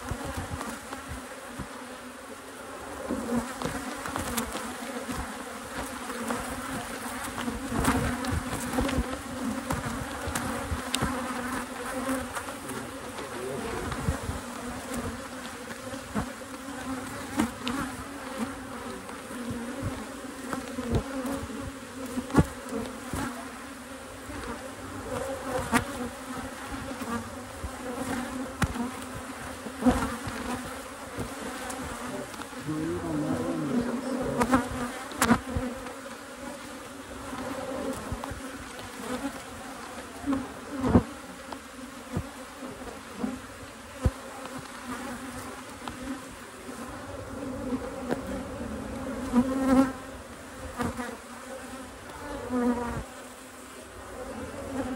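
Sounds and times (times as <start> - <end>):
bees buzzing: 0.0 - 54.9.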